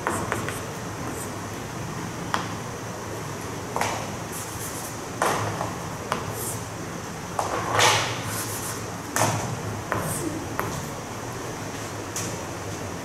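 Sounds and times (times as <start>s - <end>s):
chalk tapping and scratching on blackboard: 0.0s - 1.4s, 4.3s - 5.0s, 8.3s - 8.9s
low room hum: 0.0s - 13.0s.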